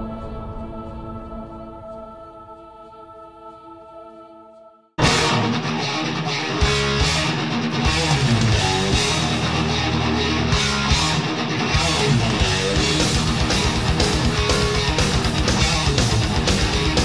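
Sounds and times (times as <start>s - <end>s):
band music with strummed guitar: 5.0s - 17.0s.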